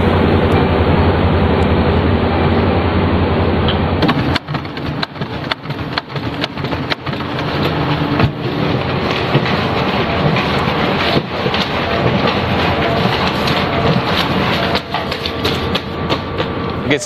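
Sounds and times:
document scanner clicking and running: 0:03.6 - 0:17.0.

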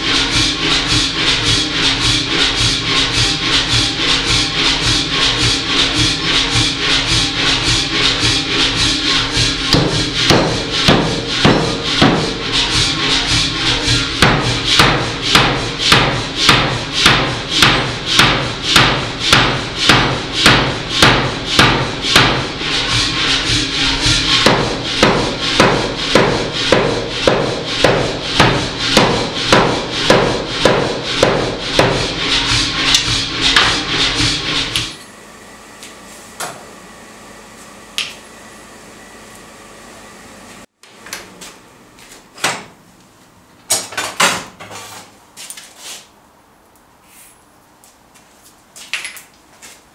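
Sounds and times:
power hammer blows: 0:00.0 - 0:35.0
machine hum: 0:00.0 - 0:42.1.

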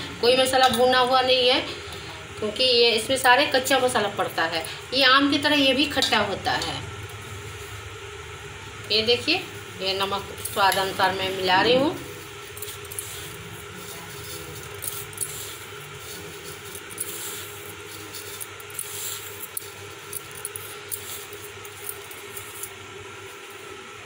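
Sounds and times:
background hum: 0:00.0 - 0:24.0
salt sprinkled in bowl: 0:12.0 - 0:23.8.

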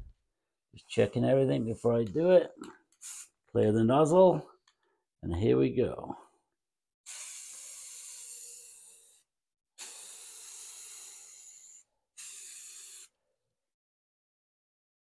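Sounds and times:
aerosol spray can hissing: 0:03.0 - 0:03.4, 0:07.1 - 0:09.2, 0:09.8 - 0:13.2.

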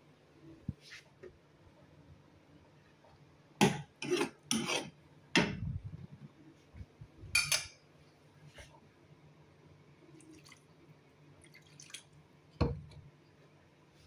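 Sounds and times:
metal ladle scraping a pan: 0:04.0 - 0:05.0.

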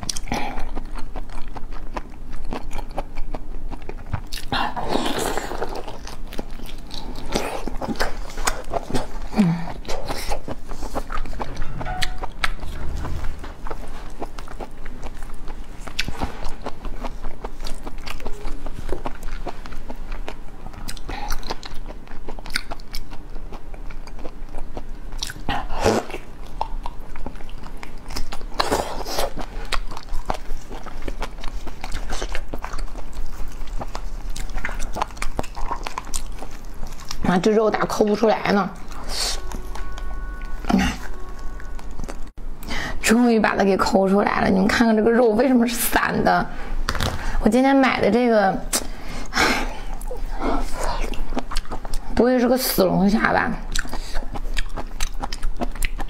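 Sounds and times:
person biting and chewing: 0:00.0 - 0:37.3, 0:46.8 - 0:47.4, 0:48.7 - 0:52.2, 0:53.6 - 0:56.0.

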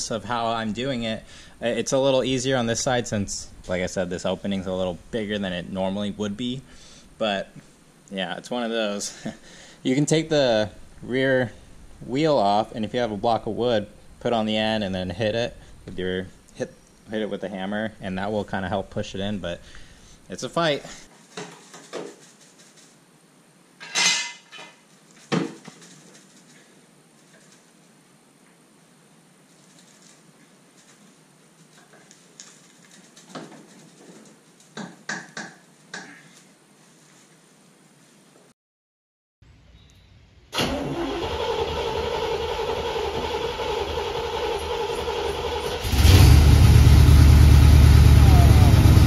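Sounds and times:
car engine starting: 0:40.6 - 0:49.0
car engine idling: 0:42.6 - 0:49.0.

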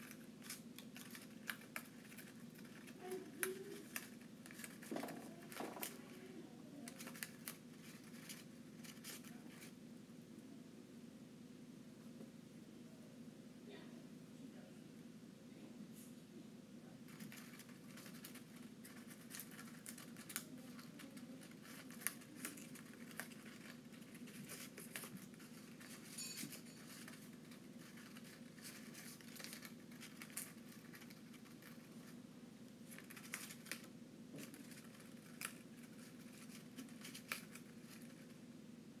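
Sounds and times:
bird tearing paper: 0:00.0 - 0:06.2, 0:06.8 - 0:09.8, 0:17.1 - 0:32.2, 0:32.8 - 0:38.4.

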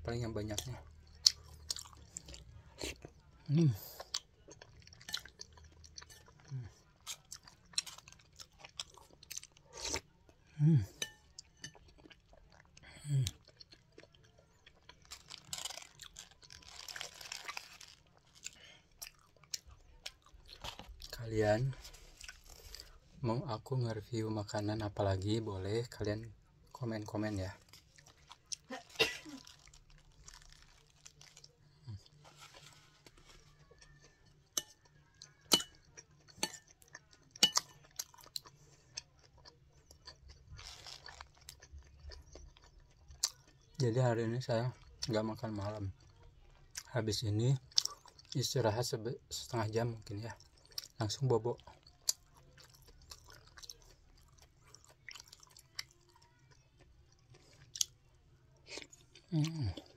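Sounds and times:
person chewing food: 0:00.4 - 0:23.2, 0:26.6 - 0:43.9, 0:44.6 - 0:46.9, 0:47.6 - 0:48.4, 0:49.5 - 0:59.9
spoon clinking against bowl: 0:35.5 - 0:36.7.

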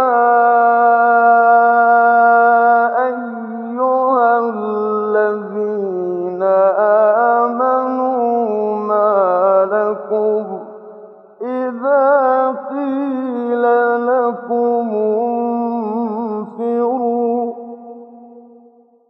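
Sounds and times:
man chanting recitation: 0:00.0 - 0:10.6, 0:11.4 - 0:17.6.

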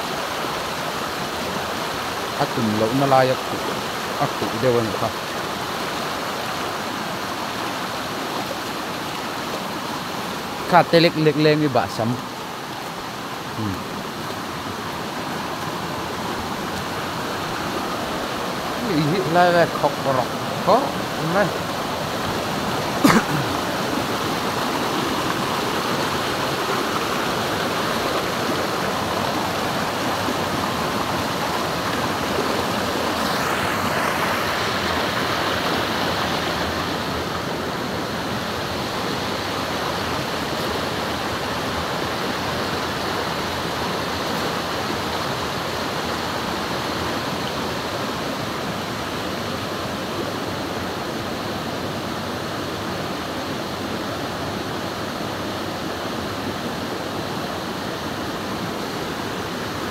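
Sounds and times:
rushing river water: 0:00.0 - 0:59.9.

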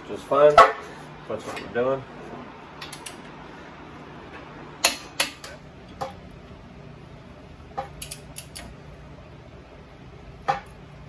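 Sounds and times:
steady low hum: 0:00.0 - 0:11.0
wrench and socket clicking: 0:08.0 - 0:08.7.

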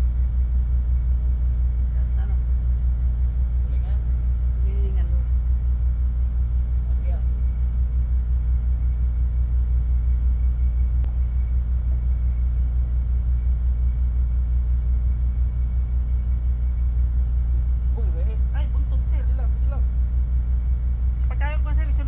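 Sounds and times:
ship engine droning: 0:00.0 - 0:22.0.

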